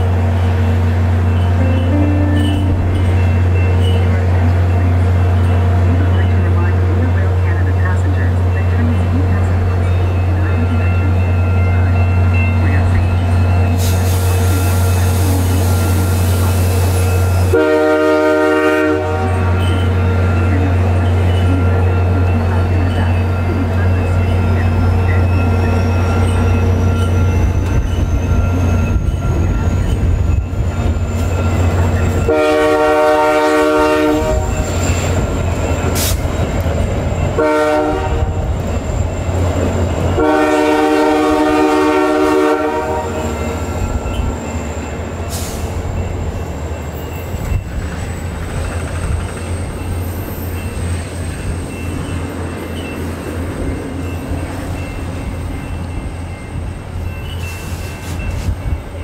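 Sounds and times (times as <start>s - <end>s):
train rumbling by: 0.0s - 59.0s
locomotive horn blasts: 17.4s - 21.0s, 32.2s - 35.0s, 37.4s - 38.6s, 40.2s - 43.5s.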